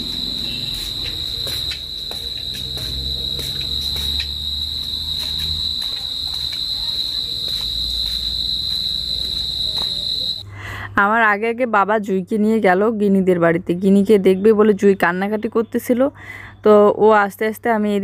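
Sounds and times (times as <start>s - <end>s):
crickets chirring: 0.0s - 10.4s.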